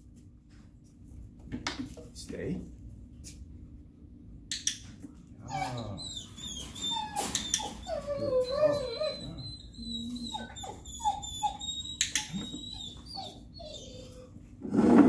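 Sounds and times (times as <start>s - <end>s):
dog whimpering and whining: 5.4s - 14.6s.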